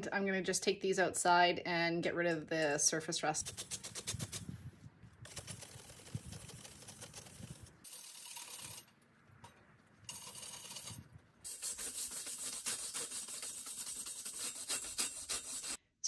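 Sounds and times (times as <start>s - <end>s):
wire brush scrubbing metal: 3.4s - 4.5s, 5.2s - 15.8s.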